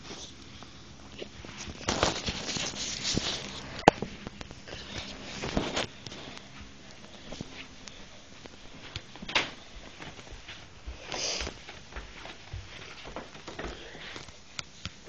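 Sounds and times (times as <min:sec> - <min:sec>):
scraping rustle: 0:01.4 - 0:03.8.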